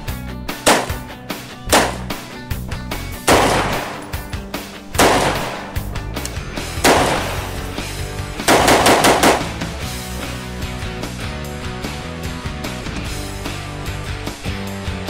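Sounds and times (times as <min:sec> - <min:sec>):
background music: 0:00.0 - 0:15.0
rifle gunshots: 0:00.6 - 0:02.3, 0:03.2 - 0:06.1, 0:06.7 - 0:09.8.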